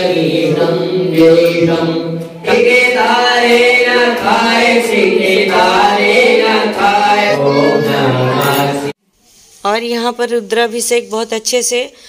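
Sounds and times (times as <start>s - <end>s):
voices singing a devotional chant: 0.0s - 9.0s.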